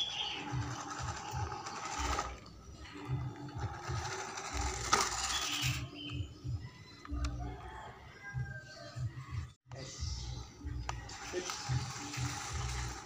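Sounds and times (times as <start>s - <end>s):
toy truck motor whirring: 0.0s - 5.9s, 11.0s - 13.0s
background music: 0.0s - 13.0s.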